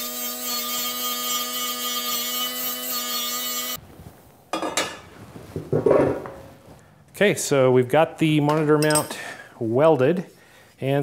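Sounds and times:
grinder whining: 0.0s - 3.8s.

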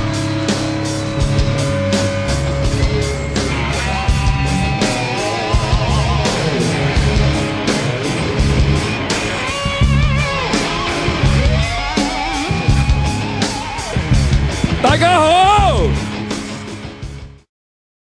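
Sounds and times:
rock music with guitar lead: 0.0s - 17.4s.

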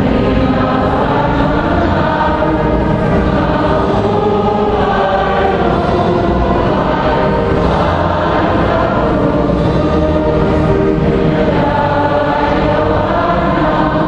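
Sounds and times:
choir singing a hymn: 0.0s - 14.0s.

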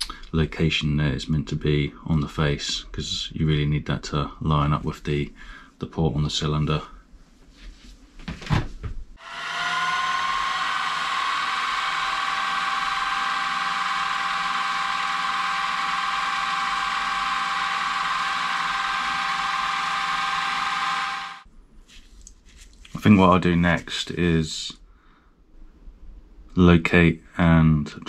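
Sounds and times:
milling machine spindle whine: 9.2s - 21.4s.

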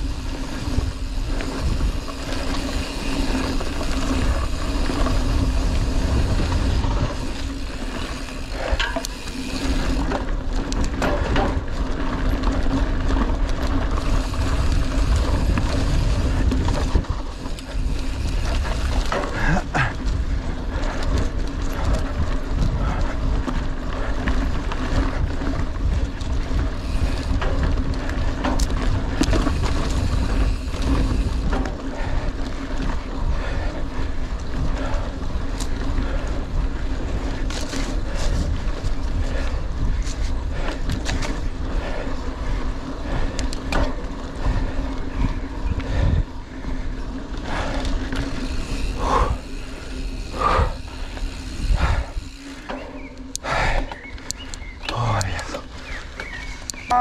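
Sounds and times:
wind rushing over microphone: 0.0s - 52.6s
bike tyre rumble: 0.0s - 57.0s
bike knocks and rattles: 0.9s - 33.7s, 43.3s - 44.8s.

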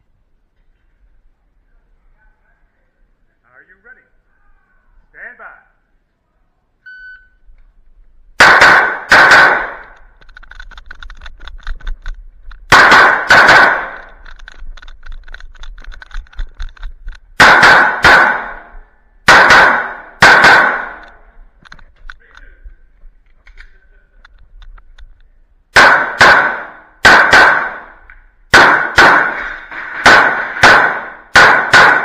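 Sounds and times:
shot timer beep: 6.8s - 7.4s
pistol shots: 8.4s - 10.0s, 12.7s - 14.2s, 17.4s - 21.2s, 25.7s - 32.0s
small clicks: 9.8s - 12.7s, 14.0s - 17.3s.

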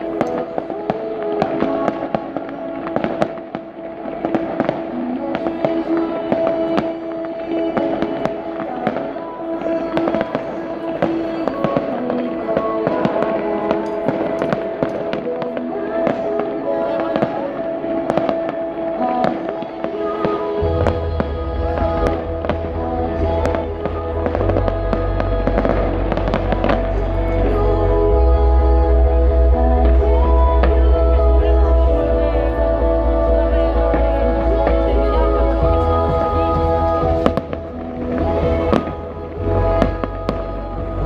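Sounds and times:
fireworks bangs and crackles: 0.0s - 27.8s, 33.8s - 41.0s
music with long held notes: 0.0s - 41.0s
heavy bass in music: 20.6s - 41.0s.

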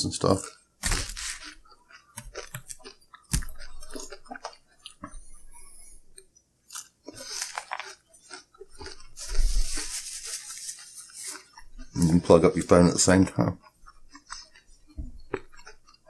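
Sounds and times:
chewing and crunching food: 0.0s - 16.0s.

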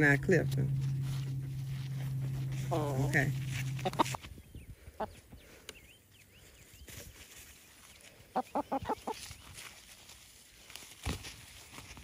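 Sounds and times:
hen clucking: 0.7s - 4.2s, 8.3s - 9.2s.

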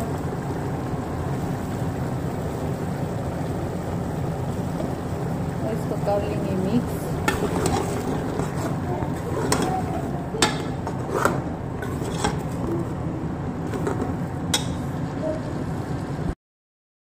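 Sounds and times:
food sizzling: 0.0s - 16.0s.

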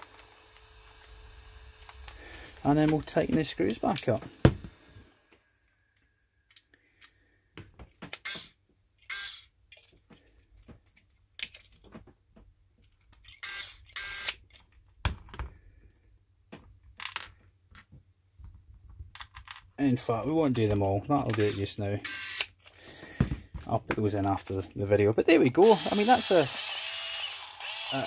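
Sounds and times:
electric screwdriver driving screws: 8.1s - 9.5s, 13.4s - 14.4s, 21.4s - 22.6s, 25.6s - 28.0s.

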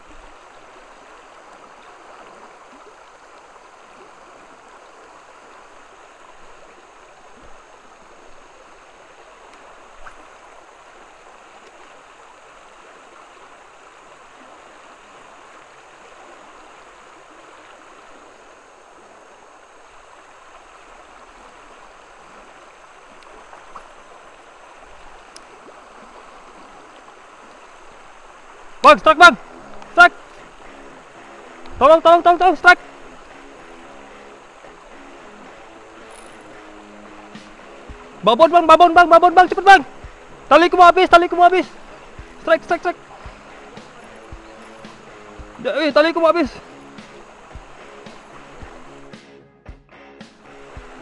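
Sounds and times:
river water rushing: 0.0s - 51.0s
faint clicks: 23.1s - 24.0s, 25.3s - 25.5s.

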